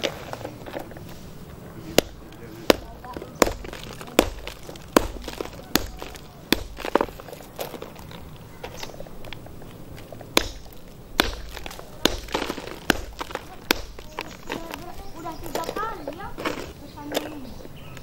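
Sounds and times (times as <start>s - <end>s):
grit crunching: 0.0s - 18.0s
hammer striking stone: 1.9s - 7.3s, 10.3s - 14.7s.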